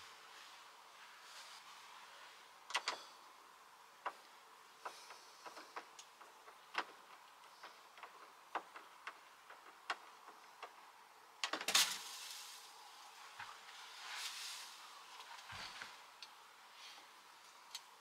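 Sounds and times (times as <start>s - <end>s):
clatter of knocks: 4.8s - 10.8s.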